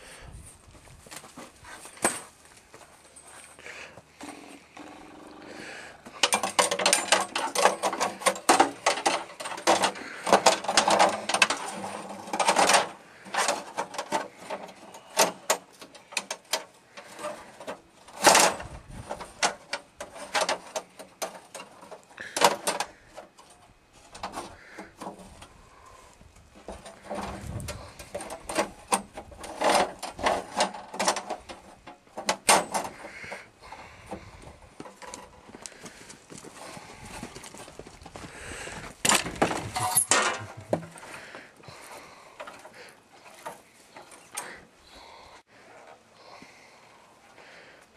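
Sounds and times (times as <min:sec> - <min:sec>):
metal clanks and rattles: 0:06.0 - 0:25.6, 0:26.4 - 0:35.6, 0:38.8 - 0:41.8.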